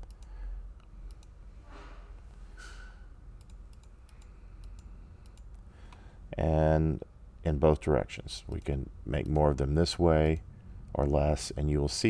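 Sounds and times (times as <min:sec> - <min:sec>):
computer mouse clicks: 0:00.0 - 0:01.4, 0:03.4 - 0:06.0, 0:08.5 - 0:09.5.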